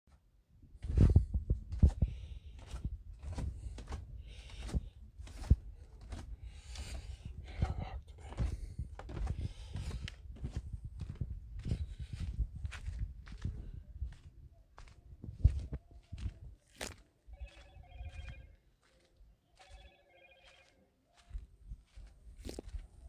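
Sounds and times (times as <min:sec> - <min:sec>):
footsteps on wooden stairs: 0:00.8 - 0:13.4
footsteps crunching on gravel: 0:20.4 - 0:22.9.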